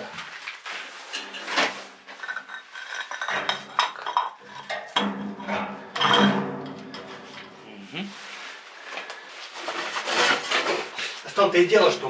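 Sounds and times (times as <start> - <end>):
metal stove clinking and knocking: 2.2 - 7.5.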